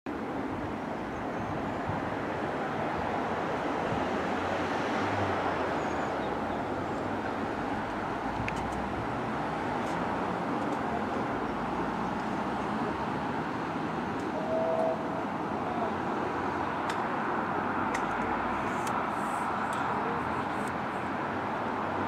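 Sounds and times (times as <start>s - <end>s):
faint tone: 14.2s - 15.9s.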